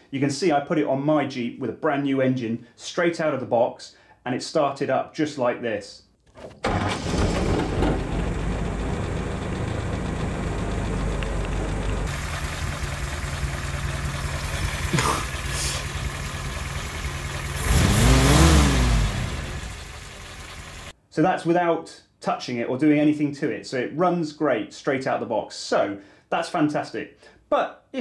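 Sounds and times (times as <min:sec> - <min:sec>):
engine starting and idling: 0:06.4 - 0:20.9
engine revving: 0:06.7 - 0:20.9.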